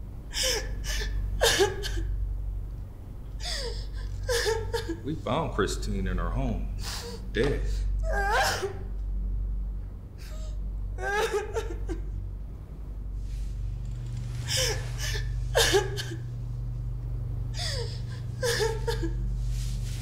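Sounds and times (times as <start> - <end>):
woman sobbing: 0.3 - 2.1, 3.4 - 5.0, 7.9 - 8.9, 10.2 - 12.2, 14.5 - 16.3, 17.5 - 19.5.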